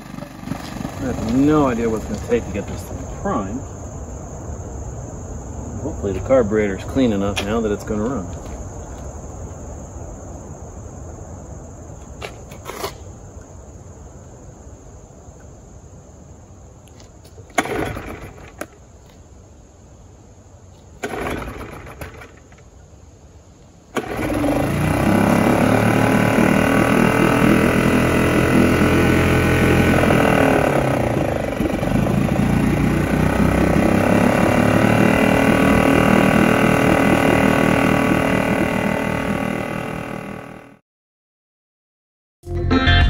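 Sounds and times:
outboard engine running: 0:00.0 - 0:02.9, 0:24.0 - 0:40.8.

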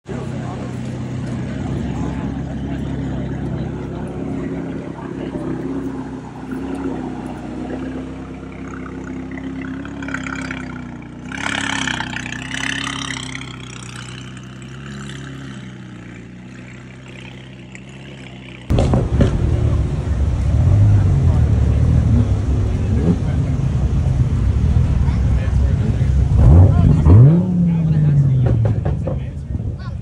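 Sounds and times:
car engine idling: 0:00.0 - 0:30.0.

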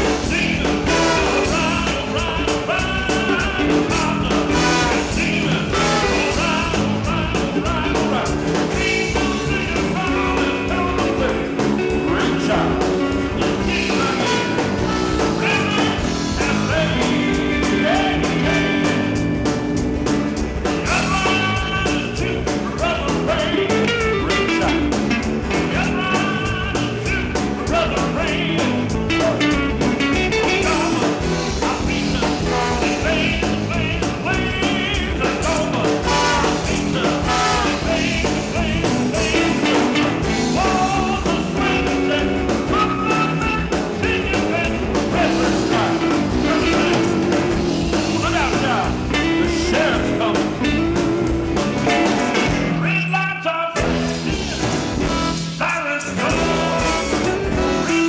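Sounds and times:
electric guitars: 0:00.0 - 0:52.9, 0:53.8 - 0:58.0
drum kit: 0:00.0 - 0:58.0
horn section: 0:00.0 - 0:58.0.

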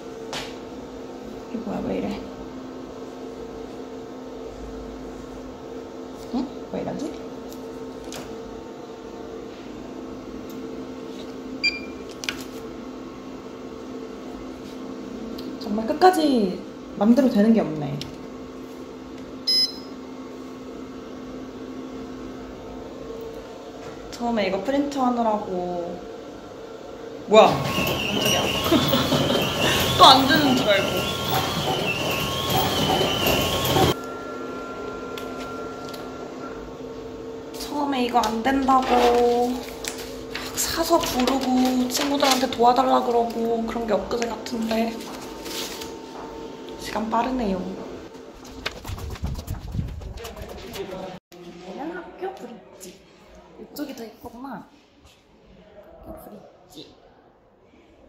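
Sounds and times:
short electronic beep: 0:19.5 - 0:19.9
printer humming: 0:24.8 - 0:51.2
high whine: 0:32.5 - 0:38.2.

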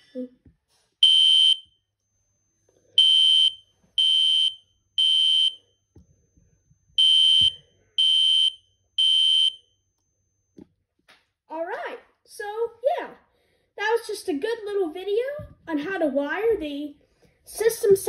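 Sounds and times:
fire alarm horn blasts: 0:01.0 - 0:01.7, 0:03.0 - 0:05.7, 0:07.0 - 0:09.7.

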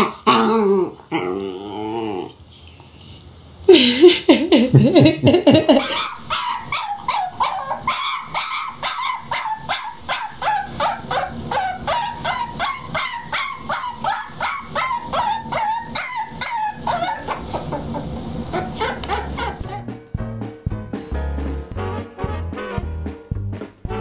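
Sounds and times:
puppy yipping: 0:05.8 - 0:19.8.

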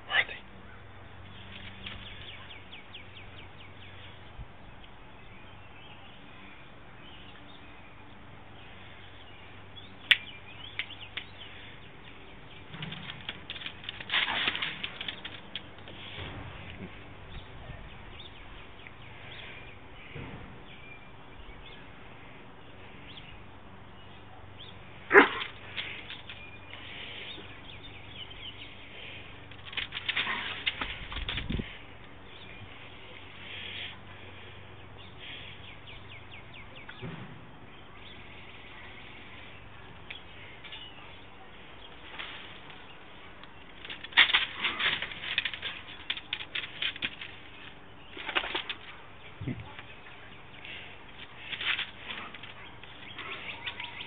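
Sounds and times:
scuffling and rustling: 0:10.8 - 0:20.5, 0:25.1 - 0:34.6, 0:38.1 - 0:54.0.

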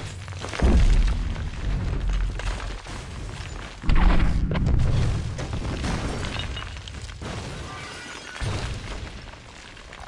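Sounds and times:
crackling and shattering debris: 0:00.0 - 0:10.0
deep explosion boom: 0:00.6 - 0:02.4, 0:03.8 - 0:05.9.

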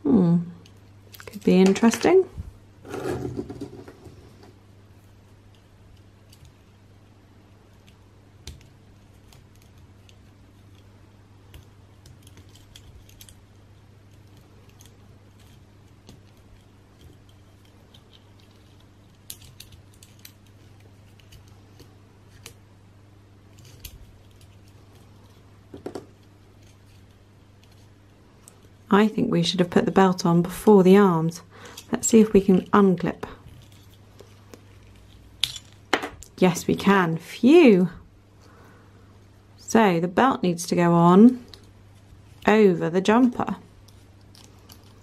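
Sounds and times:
steady low hum: 0:00.0 - 0:45.0
small plastic parts clicking: 0:07.7 - 0:22.6, 0:43.8 - 0:45.0.

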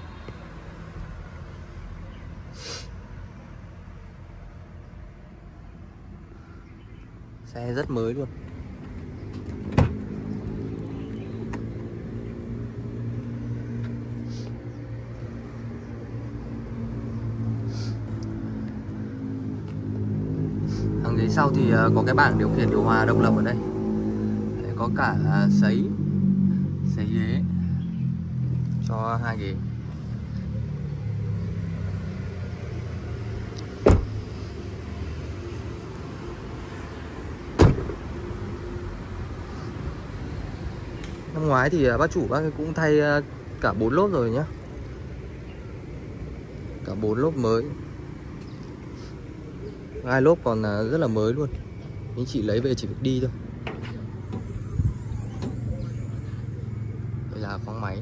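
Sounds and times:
car doors shutting: 0:09.3 - 0:10.6, 0:33.6 - 0:34.3, 0:37.5 - 0:38.1, 0:53.6 - 0:56.1
sharp thump: 0:33.8 - 0:34.2, 0:37.6 - 0:38.0.

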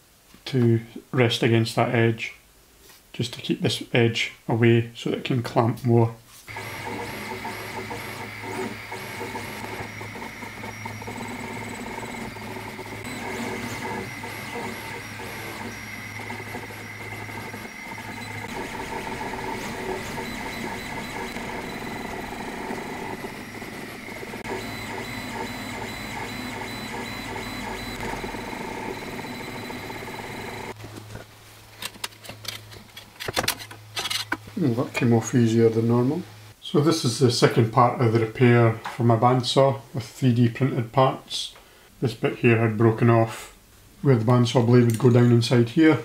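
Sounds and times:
stepper motors whining: 0:06.5 - 0:30.8.

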